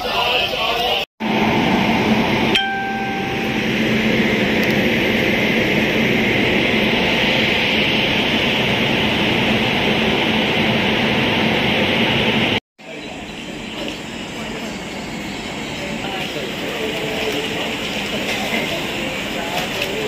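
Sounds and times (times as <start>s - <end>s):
train rolling past: 1.2s - 20.0s
brief tone: 2.6s - 4.2s.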